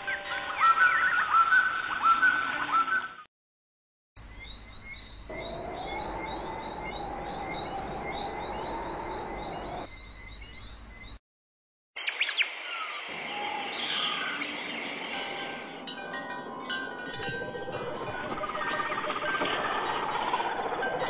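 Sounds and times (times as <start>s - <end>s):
small birds chirping: 4.2s - 11.2s.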